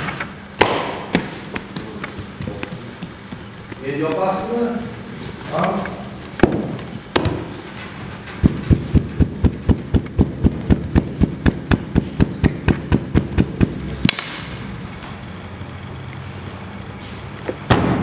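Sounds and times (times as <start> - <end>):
hand thumping bread dough: 8.4 - 14.3.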